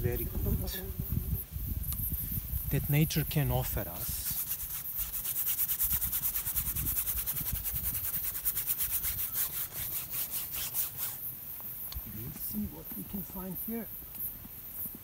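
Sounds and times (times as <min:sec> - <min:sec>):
paintbrush scrubbing canvas: 0:04.0 - 0:11.2.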